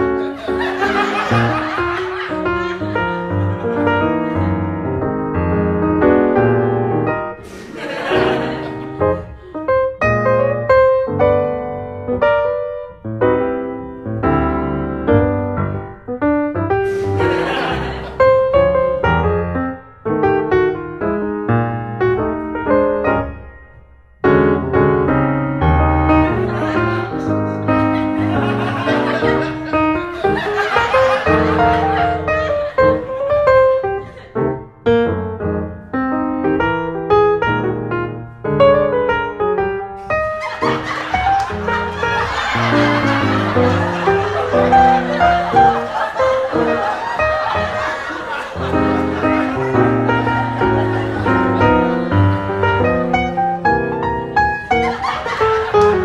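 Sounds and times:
piano melody: 0.0 - 56.0
brief hissing noise: 7.4 - 7.8, 16.8 - 17.3.

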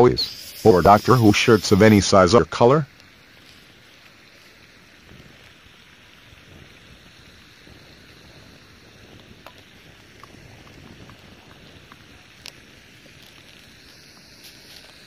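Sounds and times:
wind on microphone: 4.9 - 15.0.

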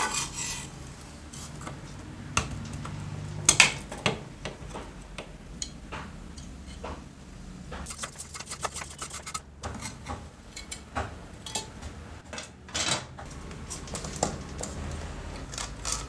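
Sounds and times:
metal scrape: 0.0 - 1.6, 7.9 - 10.0.

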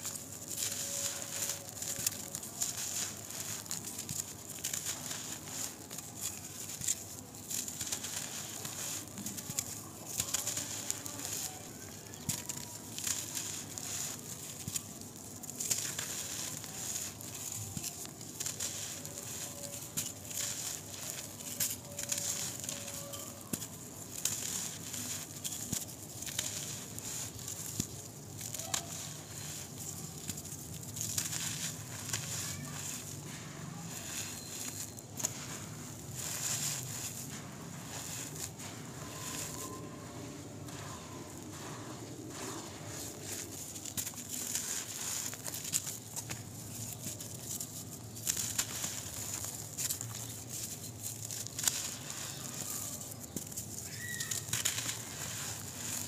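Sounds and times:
dry dirt crunching by hand: 0.0 - 56.0.

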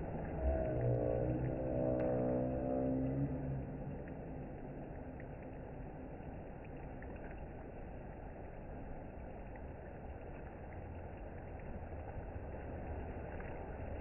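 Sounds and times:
water rushing down a slide: 0.0 - 14.0
water splashing into a pool: 0.0 - 14.0.

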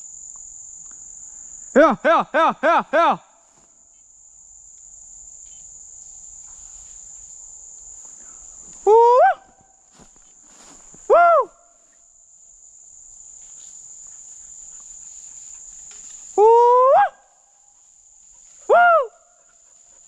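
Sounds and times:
high insect trill: 0.0 - 20.0.

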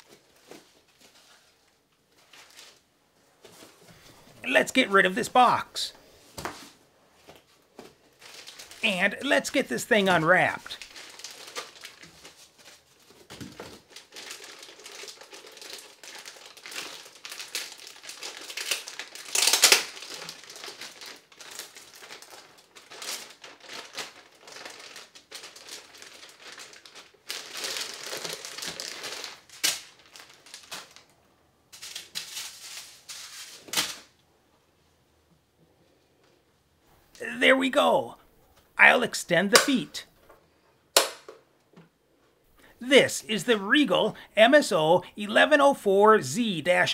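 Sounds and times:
plastic wrapping crinkling: 0.0 - 2.8, 8.0 - 8.8, 10.6 - 31.1.

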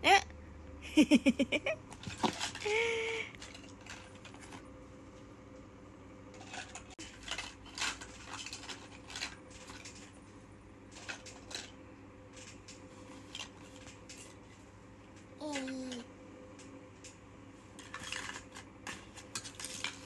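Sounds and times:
plastic toys clicking and clattering: 2.0 - 4.6, 6.3 - 10.1, 10.9 - 14.4, 15.4 - 16.0, 17.8 - 20.0.

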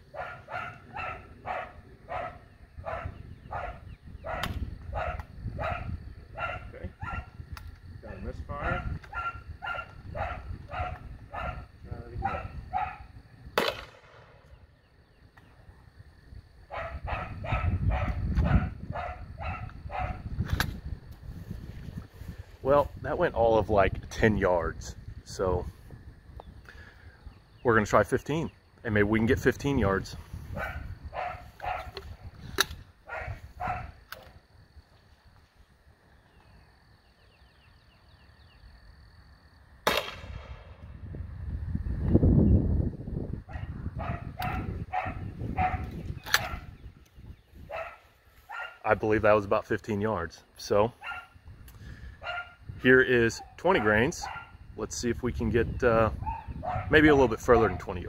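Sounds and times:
dog barking: 0.1 - 7.4, 8.1 - 13.1, 16.7 - 20.3, 30.5 - 32.0, 33.1 - 34.0, 43.5 - 46.7, 47.7 - 48.9, 51.0 - 51.4, 52.2 - 52.6, 53.4 - 54.6, 56.2 - 58.0
launcher firing sharp pop: 4.4 - 4.6, 13.6 - 14.3, 39.8 - 40.8.

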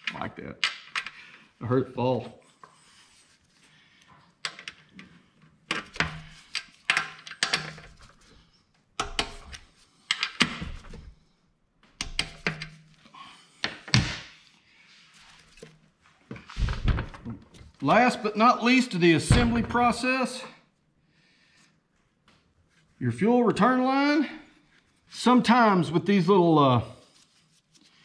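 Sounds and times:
heavy metal thunk: 19.3 - 19.9.

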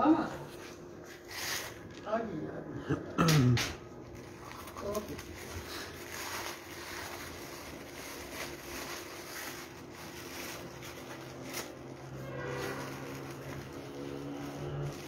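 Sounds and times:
kite sheets rustling: 4.3 - 15.0.

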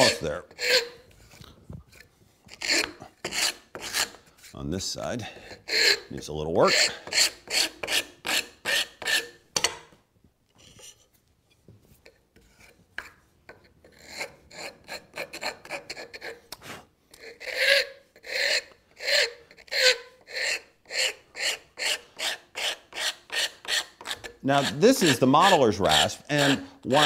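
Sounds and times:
wood rasp strokes on wood: 0.0 - 0.9, 2.5 - 4.3, 6.7 - 9.3, 17.2 - 27.0.

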